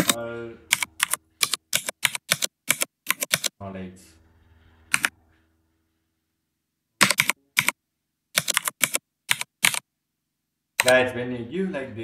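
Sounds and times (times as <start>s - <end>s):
computer keyboard typing: 0.0s - 3.6s, 4.9s - 5.2s, 7.0s - 7.8s, 8.4s - 9.8s, 10.8s - 11.0s.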